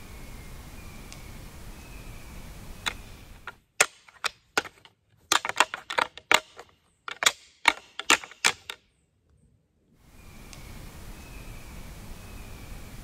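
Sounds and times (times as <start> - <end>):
sharp irregular clicks and taps: 5.3 - 8.8.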